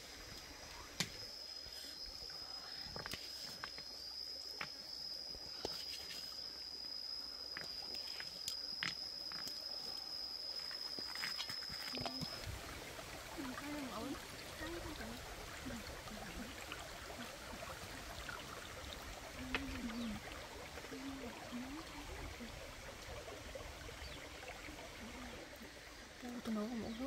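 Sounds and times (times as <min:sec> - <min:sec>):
forest stream rushing: 0:10.6 - 0:27.0.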